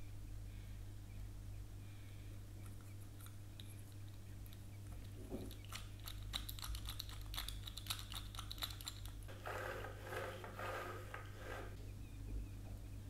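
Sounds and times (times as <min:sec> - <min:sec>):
plastic toy pieces clicking: 0:05.7 - 0:09.2.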